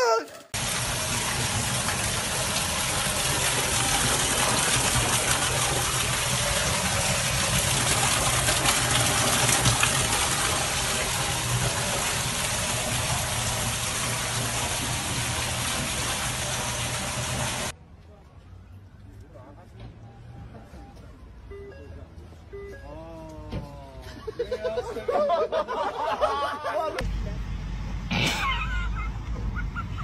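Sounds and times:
water gushing from burst pipe: 0:00.6 - 0:17.7.

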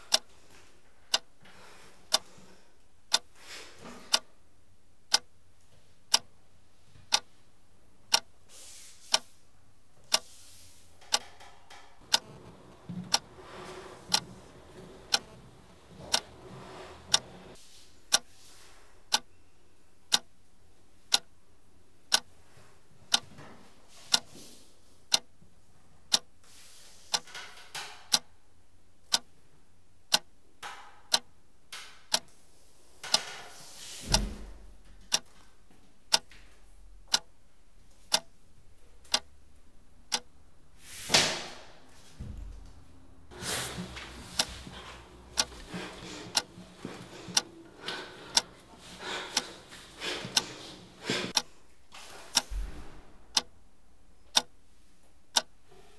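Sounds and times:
clock ticking: 0:00.0 - 0:00.3, 0:01.1 - 0:01.3, 0:03.1 - 0:03.3, 0:05.1 - 0:05.3, 0:07.1 - 0:07.3, 0:08.1 - 0:08.3, 0:10.1 - 0:10.3, 0:11.0 - 0:11.4, 0:12.0 - 0:18.3, 0:20.1 - 0:20.3, 0:21.1 - 0:21.3, 0:25.1 - 0:25.4, 0:26.1 - 0:26.3, 0:29.1 - 0:29.3, 0:30.1 - 0:30.3, 0:31.1 - 0:31.3, 0:35.1 - 0:35.3, 0:36.1 - 0:36.3, 0:37.0 - 0:37.3, 0:38.1 - 0:38.4, 0:39.1 - 0:39.4, 0:40.1 - 0:40.4, 0:43.7 - 0:51.5, 0:53.3 - 0:53.5, 0:54.3 - 0:54.6, 0:55.3 - 0:55.6.

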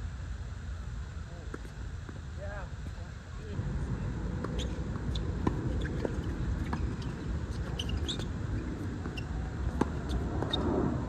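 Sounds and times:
tennis ball bouncing: 0:04.3 - 0:10.6
shoes squeaking: 0:04.4 - 0:10.8.

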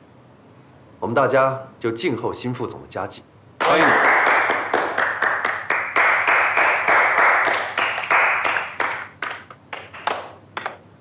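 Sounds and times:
people clapping: 0:03.6 - 0:10.9.

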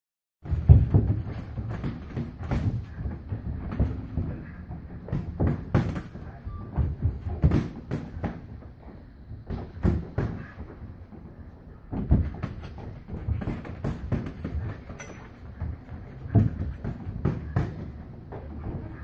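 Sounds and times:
boxing gloves striking: 0:00.4 - 0:06.2, 0:07.1 - 0:08.5, 0:09.4 - 0:10.5.

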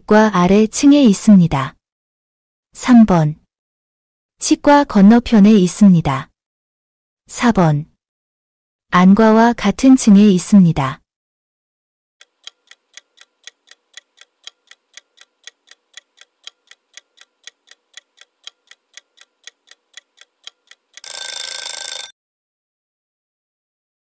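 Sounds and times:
clock ticking: 0:12.2 - 0:22.1
alarm bell ringing: 0:21.0 - 0:22.1.

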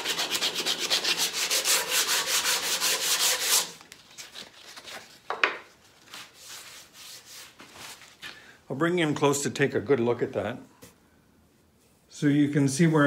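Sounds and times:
sandpaper sanding wood: 0:00.0 - 0:03.8, 0:06.4 - 0:07.6.

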